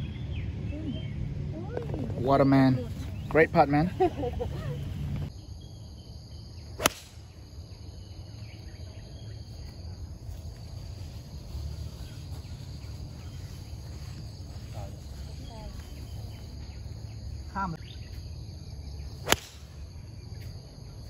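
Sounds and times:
insects chirring: 0:02.3 - 0:21.0
golf club striking ball: 0:06.8 - 0:07.2, 0:19.2 - 0:19.8.

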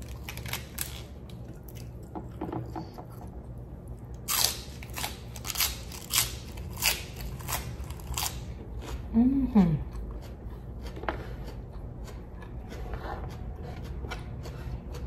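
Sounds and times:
lettuce crunching: 0:00.0 - 0:02.2, 0:04.0 - 0:09.0.

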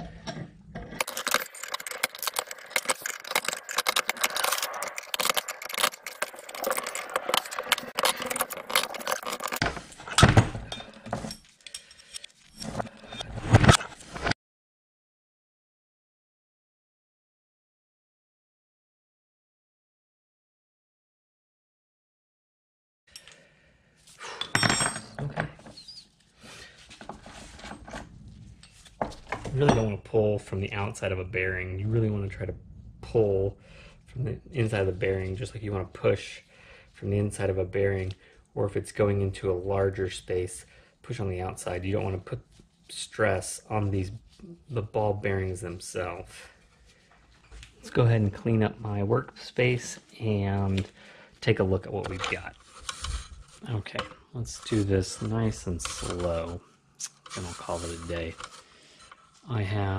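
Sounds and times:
metal tools clanking on workbench: 0:24.4 - 0:25.6, 0:29.0 - 0:30.0.

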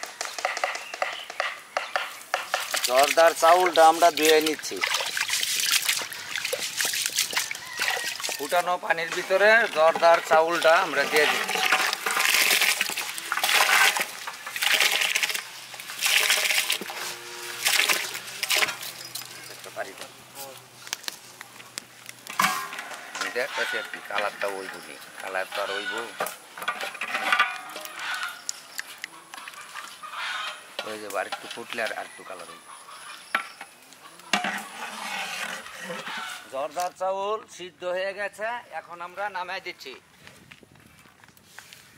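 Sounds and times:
metal ladle stirring in pot: 0:02.3 - 0:19.5, 0:22.3 - 0:28.4, 0:34.3 - 0:36.5
rice splashing into boiling water: 0:02.5 - 0:16.9.

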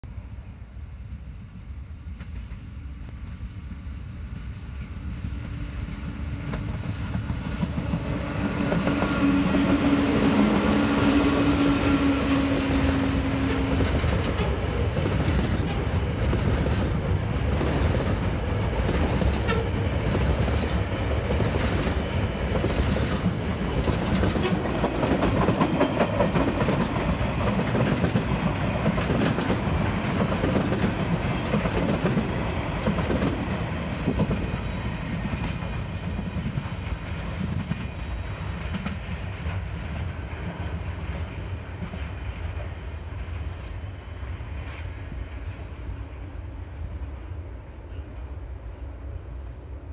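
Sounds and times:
diesel locomotives passing: 0:00.1 - 0:49.9
wagons clicking over rail joints: 0:12.6 - 0:34.6.

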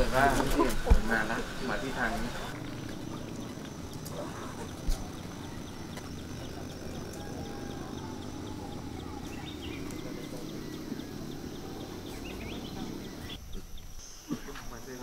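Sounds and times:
low steady rumble: 0:00.0 - 0:13.4
insect ticking: 0:02.5 - 0:14.1.

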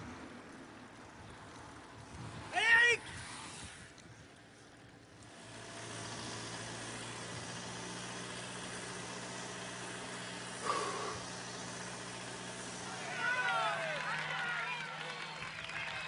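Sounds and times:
hiss: 0:03.1 - 0:04.0, 0:05.3 - 0:13.1
low engine hum: 0:03.2 - 0:16.0.

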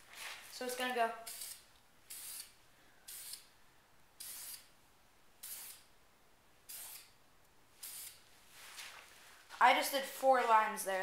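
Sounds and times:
spray paint can hissing: 0:01.2 - 0:03.5, 0:04.2 - 0:04.7, 0:05.4 - 0:05.9, 0:06.7 - 0:07.1, 0:07.8 - 0:08.2.

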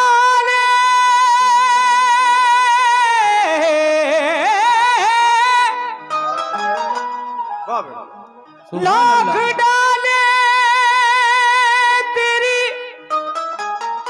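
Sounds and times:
man singing melismatic notes: 0:00.0 - 0:13.3
musical accompaniment: 0:03.7 - 0:14.0.

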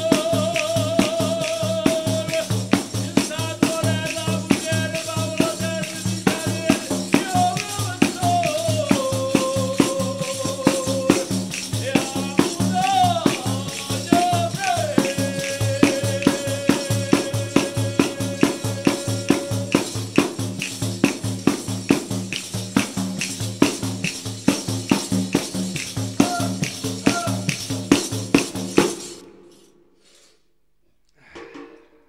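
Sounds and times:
background music with percussion beat: 0:00.0 - 0:29.8, 0:31.3 - 0:32.0.

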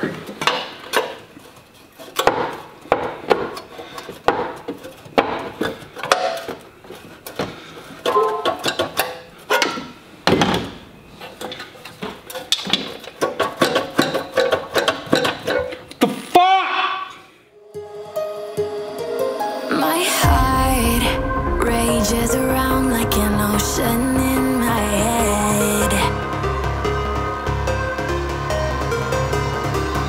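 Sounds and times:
background music: 0:17.6 - 0:30.0.

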